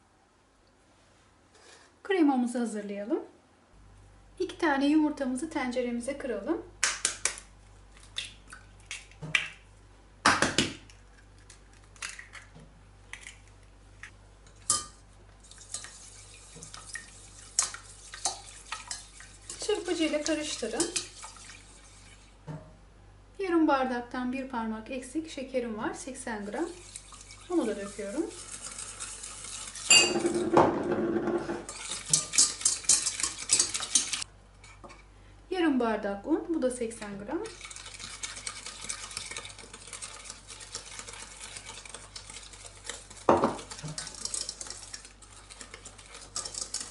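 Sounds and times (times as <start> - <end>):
whisk clicking against pot: 15.5 - 22.2, 31.6 - 34.3, 37.4 - 46.9
ringing clink on pot: 29.9 - 30.3.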